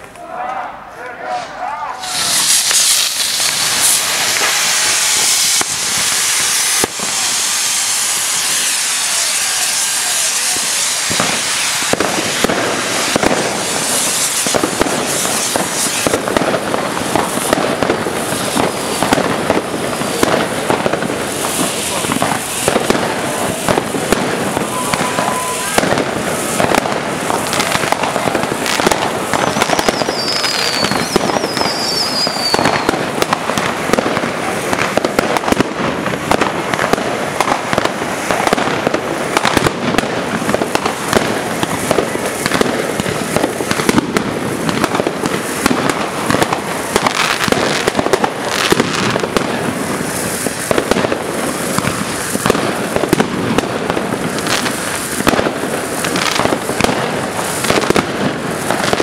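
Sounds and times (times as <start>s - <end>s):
fireworks crackling and banging: 0.0s - 59.0s
falling firework whistles: 2.0s - 59.0s.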